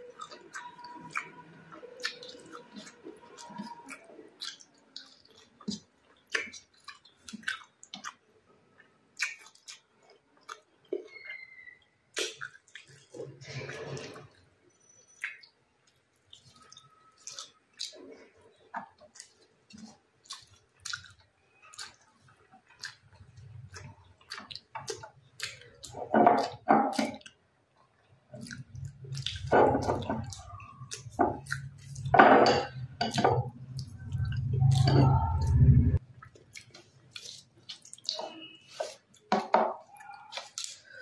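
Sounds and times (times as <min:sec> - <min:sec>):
person chewing food: 0:00.0 - 0:41.0
low rumble: 0:33.8 - 0:36.0.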